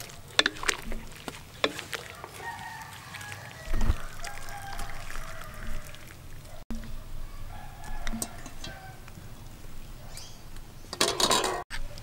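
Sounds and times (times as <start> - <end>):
rooster crowing: 2.0 - 6.1, 7.2 - 9.1.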